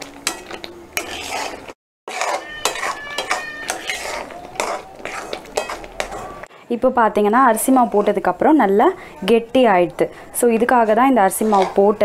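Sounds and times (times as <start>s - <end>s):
spatula scraping metal pan: 0.2s - 6.5s, 10.7s - 12.0s.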